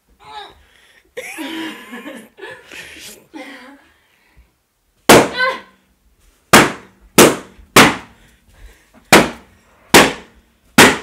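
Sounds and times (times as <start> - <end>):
balloons popping: 5.1 - 5.4, 6.5 - 8.1.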